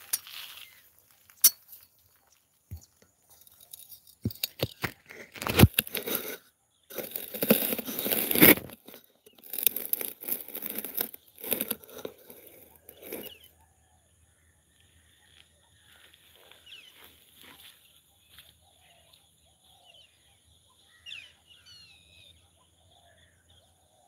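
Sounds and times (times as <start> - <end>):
rustling and crackling at microphone: 0.0 - 13.5.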